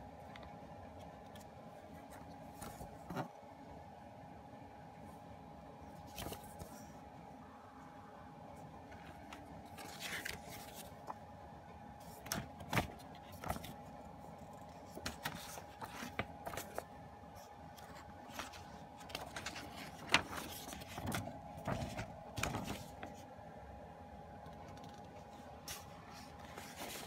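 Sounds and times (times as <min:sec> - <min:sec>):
faint steady hum: 0:00.0 - 0:27.0
paper rustling: 0:00.3 - 0:03.3, 0:06.0 - 0:06.9, 0:08.9 - 0:11.2, 0:12.0 - 0:23.3, 0:24.5 - 0:27.0.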